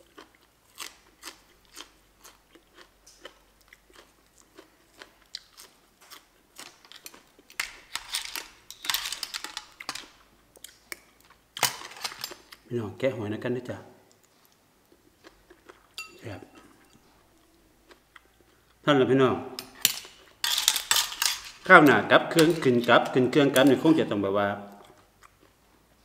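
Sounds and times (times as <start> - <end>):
chewing crunchy vegetable: 0.0 - 7.6, 14.1 - 18.8.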